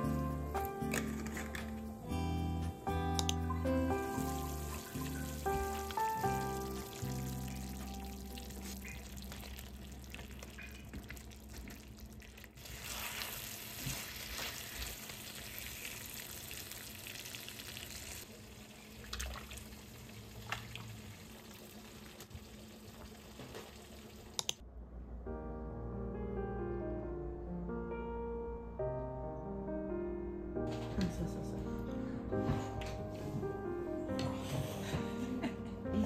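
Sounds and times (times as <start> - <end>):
food sizzling in a frying pan: 3.9 - 9.7, 12.6 - 18.2.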